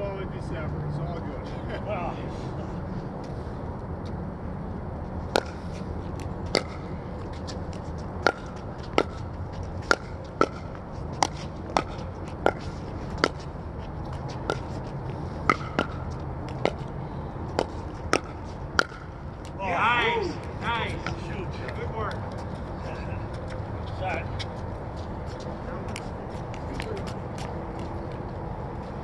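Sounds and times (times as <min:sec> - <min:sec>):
steady low rumble: 0:00.0 - 0:29.0
paddles hitting plastic ball: 0:08.2 - 0:09.2, 0:17.6 - 0:19.6.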